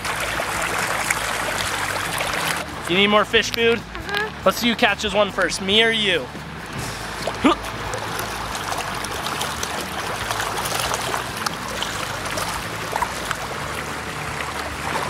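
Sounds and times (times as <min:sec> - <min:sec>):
small splashes: 0:00.0 - 0:04.8, 0:06.2 - 0:15.0
trickling water: 0:00.0 - 0:15.0.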